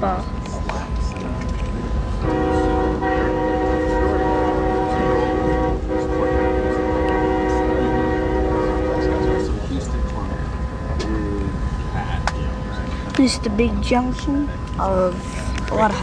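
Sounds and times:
train running rumble: 0:00.0 - 0:16.0
train air horn blasts: 0:02.2 - 0:09.6.

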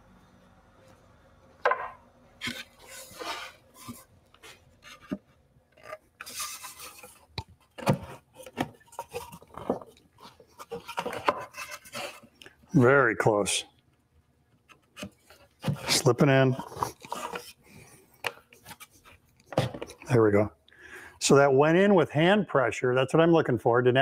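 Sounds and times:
wood knocking and scraping on wood: 0:01.6 - 0:12.4, 0:14.6 - 0:17.5.

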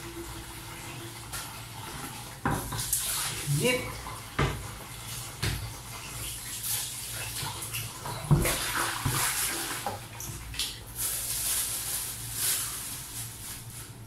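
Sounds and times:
plastic bag rustling: 0:10.6 - 0:14.0.

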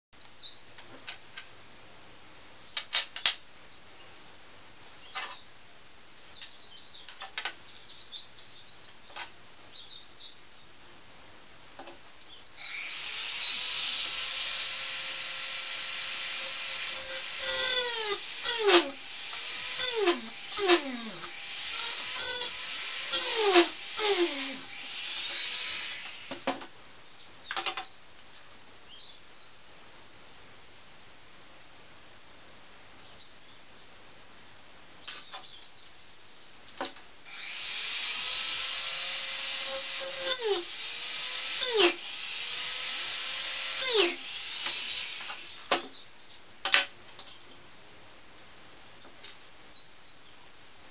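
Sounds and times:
rotary tool drilling whine: 0:12.6 - 0:26.7, 0:37.3 - 0:45.9.

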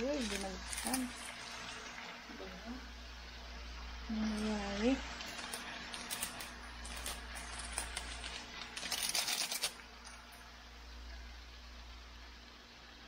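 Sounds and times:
granules clicking onto wok: 0:00.0 - 0:01.4, 0:04.3 - 0:10.3.

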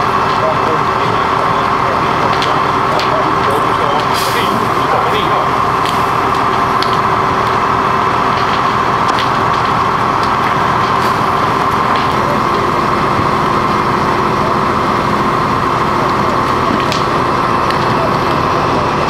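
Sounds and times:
fire crackling and popping: 0:00.0 - 0:19.0
fire engine running: 0:00.0 - 0:19.0.

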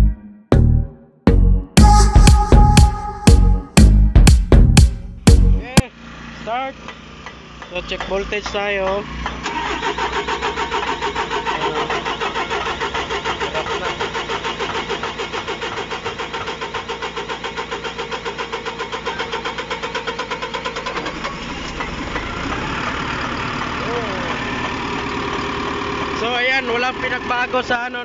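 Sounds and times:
diesel engine running: 0:01.8 - 0:28.0
diesel engine starter cranking: 0:06.4 - 0:28.0.

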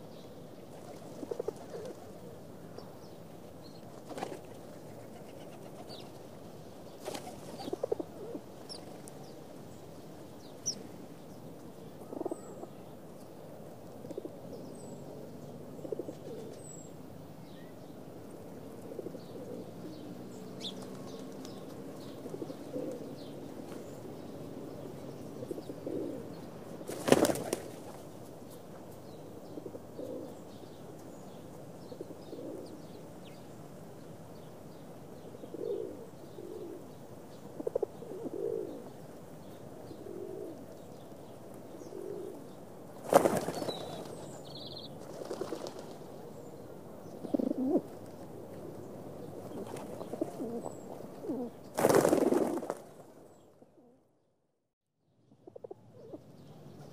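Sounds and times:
pigeons cooing: 0:00.9 - 0:02.2, 0:07.1 - 0:08.9, 0:12.0 - 0:12.7, 0:15.8 - 0:16.6, 0:20.6 - 0:23.2, 0:25.2 - 0:27.9, 0:29.4 - 0:30.4, 0:31.9 - 0:32.8, 0:35.4 - 0:39.0, 0:39.9 - 0:40.9, 0:41.8 - 0:42.6, 0:47.1 - 0:52.8
wings flapping: 0:04.0 - 0:06.2, 0:07.0 - 0:08.0, 0:26.9 - 0:28.0, 0:43.0 - 0:44.2, 0:45.0 - 0:46.1, 0:51.7 - 0:53.0.

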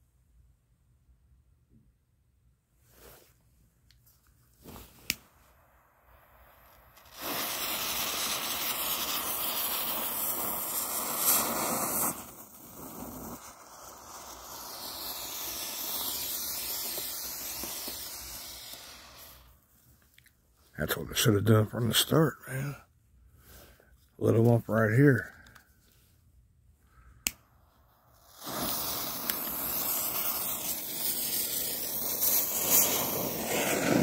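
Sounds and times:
smoke ball hissing: 0:04.6 - 0:19.8, 0:26.9 - 0:34.0
fuse hissing loudly: 0:07.0 - 0:19.5.

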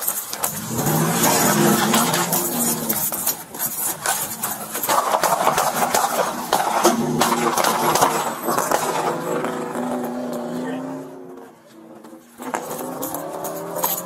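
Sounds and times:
gear knocking and rattling: 0:00.0 - 0:09.2, 0:12.2 - 0:14.0
running footsteps: 0:00.0 - 0:10.5
car engine revving: 0:00.4 - 0:14.0.

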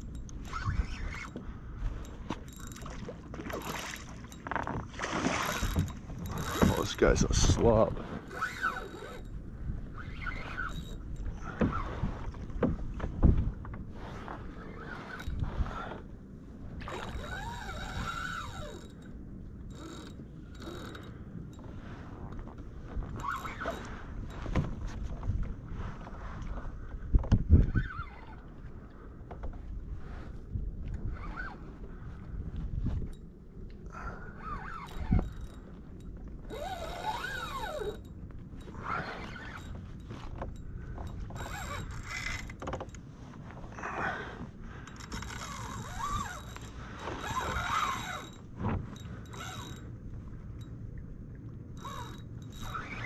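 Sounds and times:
fishing reel whirring: 0:00.0 - 0:01.4, 0:05.3 - 0:11.4, 0:16.9 - 0:19.1, 0:19.7 - 0:21.7, 0:34.3 - 0:35.6, 0:36.5 - 0:39.8, 0:41.0 - 0:42.6, 0:44.9 - 0:49.9, 0:51.8 - 0:53.0.

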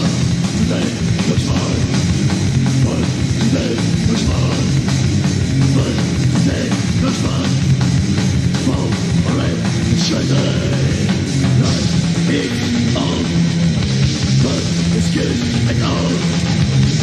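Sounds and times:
heavy metal band playing: 0:00.0 - 0:17.0.

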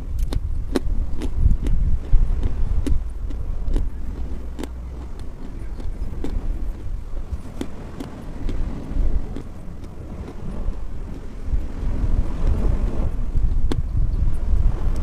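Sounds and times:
low background rumble: 0:00.0 - 0:15.0
chalk crunching while chewed: 0:00.1 - 0:11.3.

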